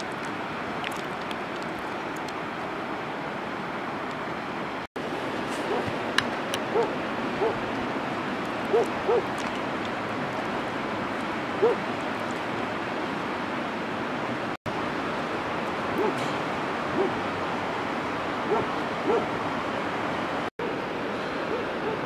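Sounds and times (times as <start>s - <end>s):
river rushing over rocks: 0.0s - 22.0s
animal calls: 8.7s - 9.3s.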